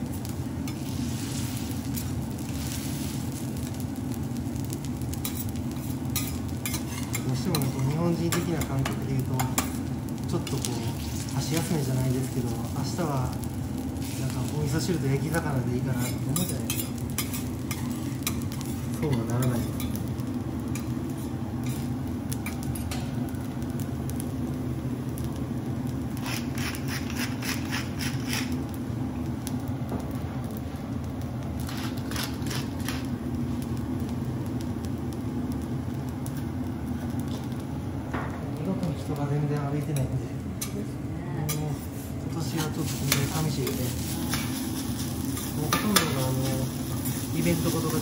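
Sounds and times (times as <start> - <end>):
rhythmic rattling of seasoning shaker: 0.0 - 24.7, 26.0 - 28.9, 31.5 - 37.7, 41.4 - 48.0
faint crackling on hot griddle: 0.0 - 48.0
rice sizzling: 0.0 - 48.0
spatulas scraping on griddle: 5.2 - 9.8, 15.9 - 20.0, 20.7 - 23.1, 26.2 - 28.6, 31.6 - 33.1, 41.5 - 48.0.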